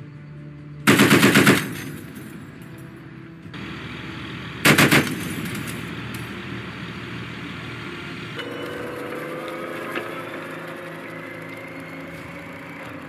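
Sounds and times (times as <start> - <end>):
heavy machine gun bursts: 0.9 - 2.3, 4.6 - 5.9.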